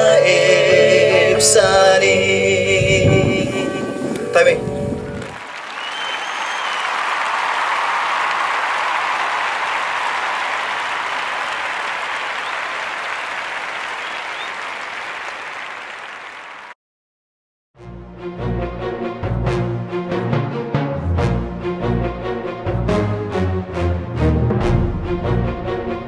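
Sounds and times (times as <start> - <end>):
crowd applauding: 4.4 - 16.8.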